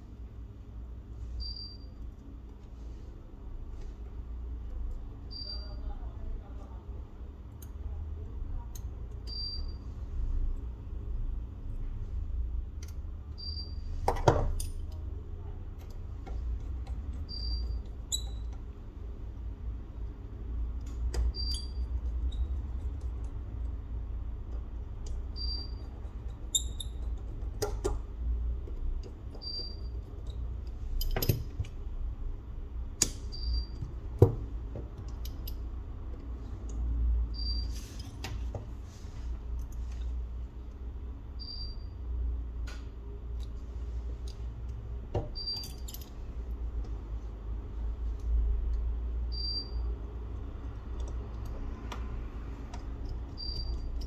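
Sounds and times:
steady low hum: 0.0s - 54.0s
tools clicking and tapping: 12.7s - 18.8s, 20.8s - 23.8s, 24.4s - 31.8s, 32.9s - 38.7s, 42.6s - 47.3s, 50.4s - 54.0s.

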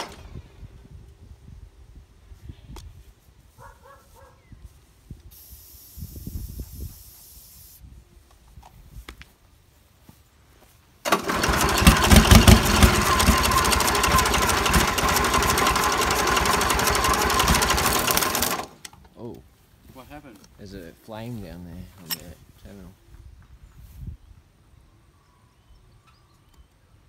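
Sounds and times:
aerosol can hissing: 5.3s - 7.8s
diesel engine running rattly: 11.1s - 18.8s.

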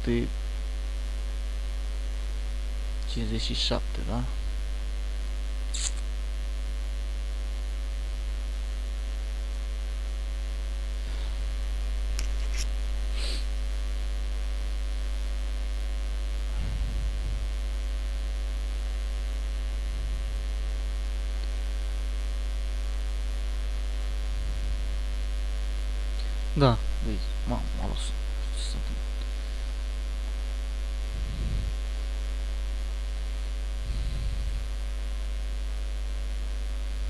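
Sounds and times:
electrical mains hum: 0.0s - 37.0s.

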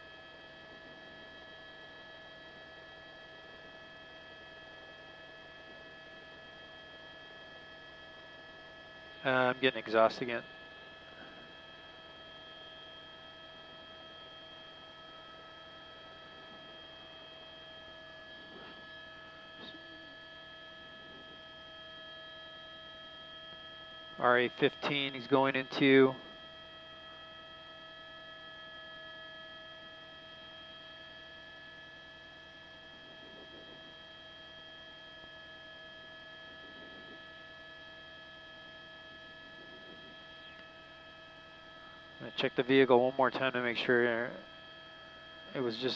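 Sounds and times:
steady electrical hum: 0.0s - 45.9s
constant high tones: 9.1s - 12.0s, 14.7s - 23.4s, 24.0s - 26.4s.

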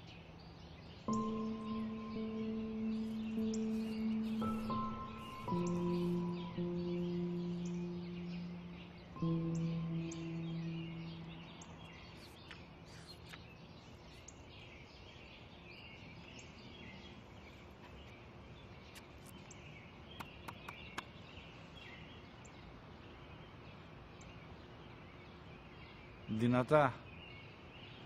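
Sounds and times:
steady background hiss: 0.0s - 20.1s
small birds chirping: 0.0s - 28.0s.

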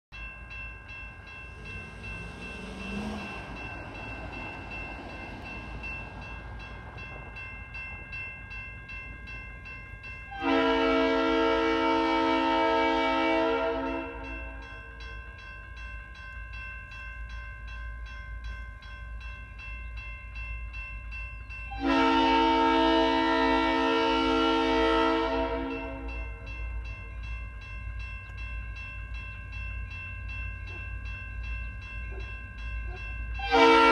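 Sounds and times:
crossing bell ringing: 0.1s - 33.9s
locomotive horn blasts: 10.3s - 14.6s, 21.7s - 26.5s, 33.4s - 33.9s.

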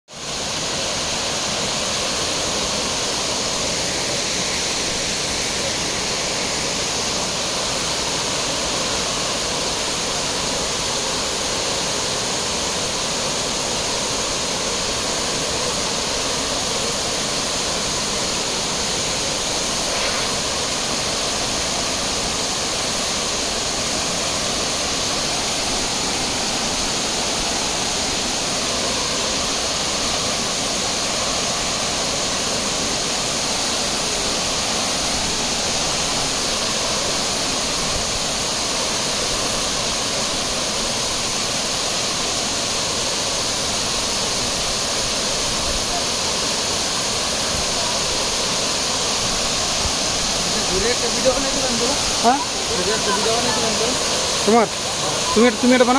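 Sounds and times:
waterfall rushing: 0.1s - 55.9s.

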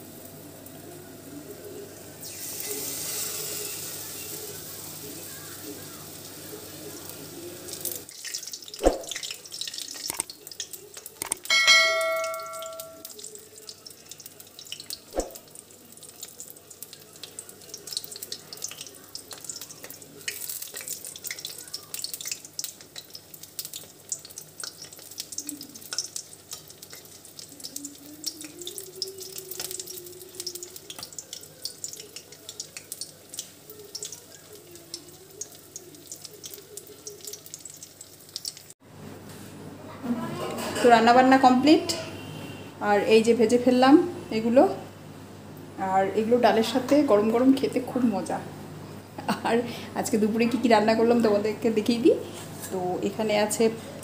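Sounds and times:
oil sizzling and crackling: 0.0s - 38.8s
brief ringing tone: 11.5s - 13.0s.

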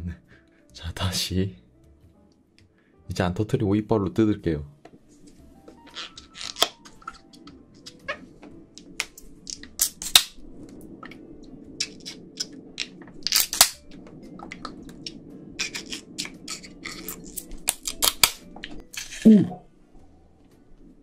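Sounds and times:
teeth biting rubber: 5.9s - 8.0s, 15.6s - 18.4s.

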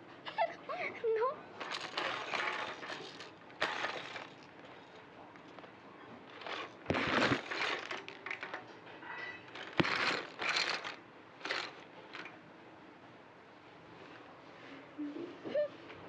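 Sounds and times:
plastic toys rattling in basket: 1.6s - 8.7s, 9.4s - 12.3s.

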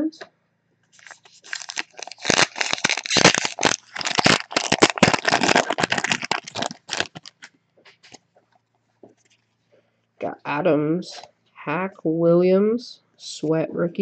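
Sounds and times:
foil wrapper crinkling: 1.0s - 8.2s.

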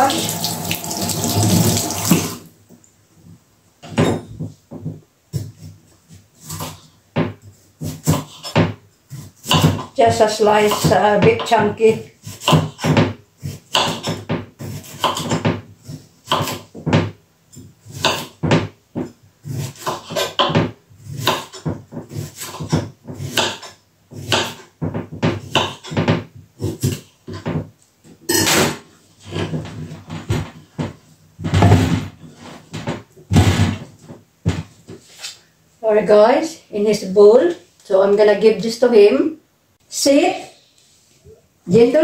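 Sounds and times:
knife chopping on wooden board: 6.4s - 17.2s, 17.9s - 27.5s.

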